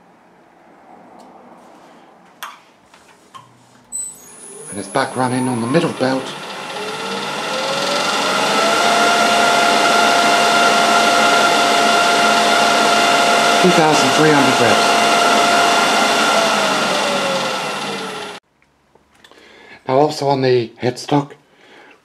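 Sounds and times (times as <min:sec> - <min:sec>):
lathe whining: 0:04.0 - 0:18.4.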